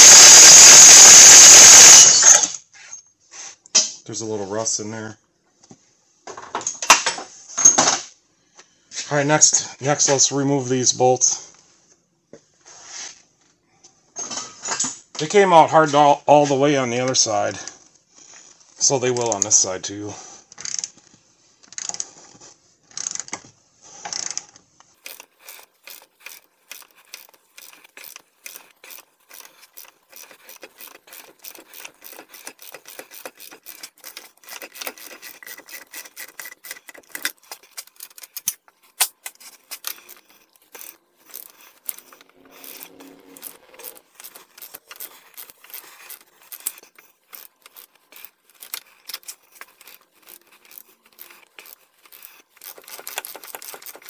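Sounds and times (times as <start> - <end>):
hand ratchet clicking: 0.0 - 2.6, 20.5 - 21.0, 22.9 - 23.4, 24.1 - 54.0.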